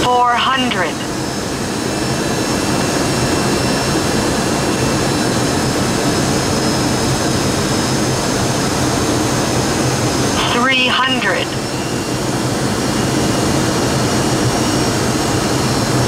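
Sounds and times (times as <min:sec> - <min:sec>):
jet engine roar and airflow: 0:00.0 - 0:16.0
faint high whines: 0:10.1 - 0:16.0.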